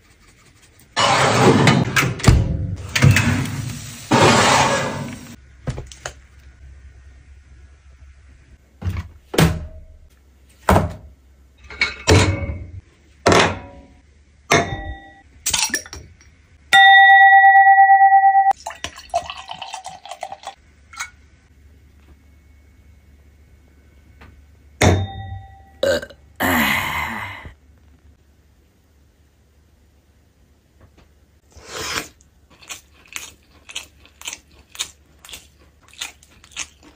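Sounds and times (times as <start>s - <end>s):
oven tray rush: 2.8s - 5.4s
dishes and glassware clinking: 11.6s - 13.9s, 14.5s - 16.0s
pouring: 18.6s - 20.6s.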